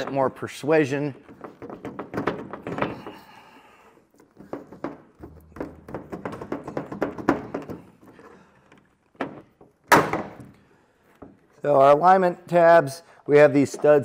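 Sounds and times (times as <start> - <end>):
plastic housing rattling and knocking: 1.2 - 3.0, 4.2 - 9.8.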